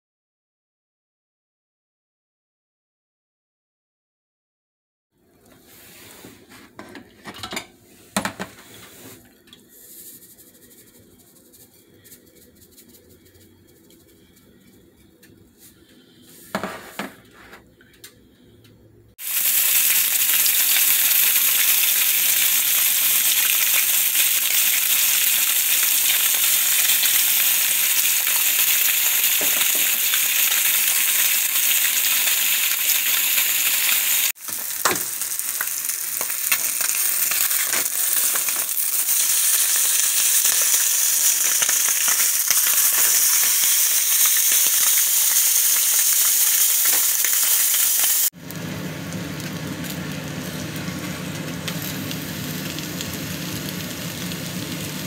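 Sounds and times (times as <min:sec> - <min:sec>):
fish sizzling in hot oil: 0:19.2 - 0:55.0.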